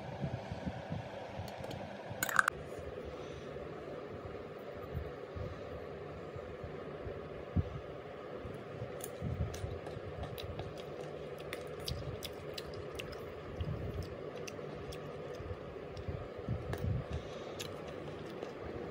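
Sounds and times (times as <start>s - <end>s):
steady background hum: 0.0s - 18.9s
spoon clicking on ceramic bowl: 2.2s - 2.5s.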